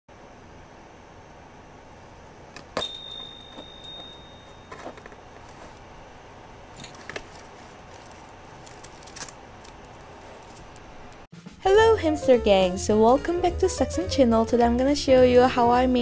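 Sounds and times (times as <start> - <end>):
small bell chiming: 2.8 - 4.7.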